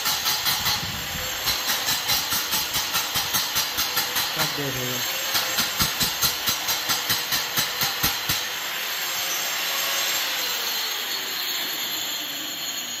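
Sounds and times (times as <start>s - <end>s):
grinder disc striking concrete: 0.0s - 8.5s
angle grinder running: 0.0s - 13.0s.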